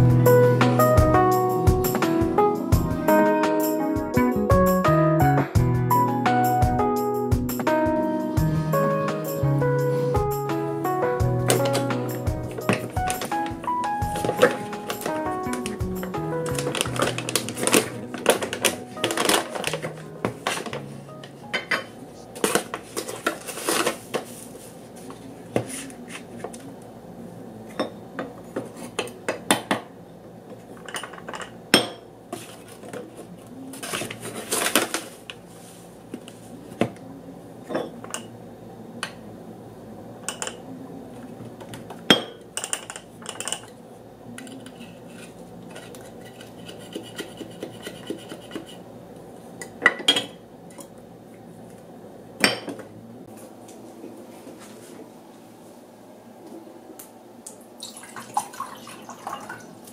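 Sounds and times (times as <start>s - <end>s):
coffee bag rustling: 16.5s - 20.7s.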